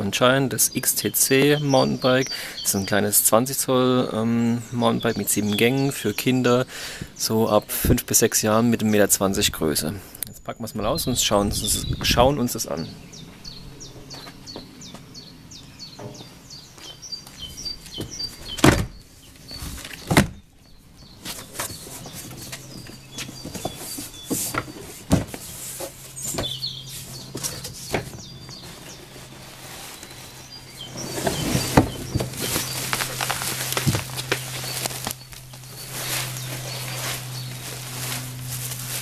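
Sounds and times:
birds chirping: 0.0 - 39.0
plastic wrap rustling: 28.6 - 39.0
cardboard box being opened: 30.8 - 37.2.

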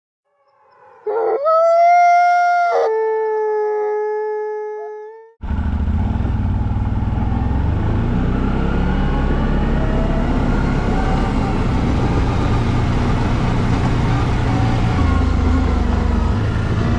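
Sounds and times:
wolf-like howl: 0.3 - 5.3
quad bike engine running: 5.4 - 16.9.

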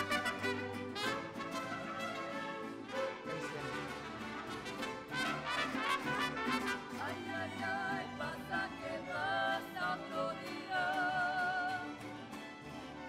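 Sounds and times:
strummed guitars: 0.0 - 13.0
voices singing in harmony: 6.8 - 11.9.

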